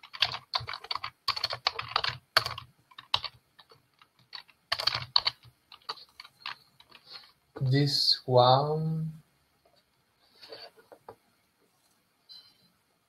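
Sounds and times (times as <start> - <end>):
typing on computer keyboard: 0.0 - 7.3.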